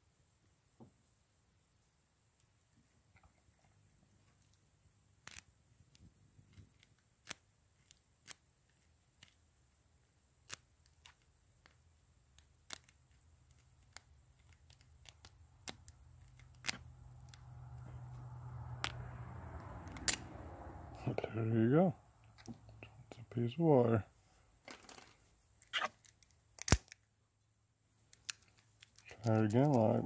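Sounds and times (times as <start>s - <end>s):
wire clicking in padlock: 5.2s - 9.4s, 10.4s - 17.5s, 19.8s - 20.3s, 25.7s - 27.1s, 28.1s - 30.0s.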